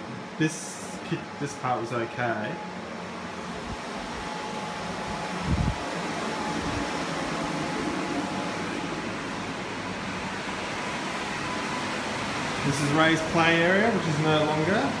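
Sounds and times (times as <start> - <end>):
drying fans rushing: 0.0 - 15.0.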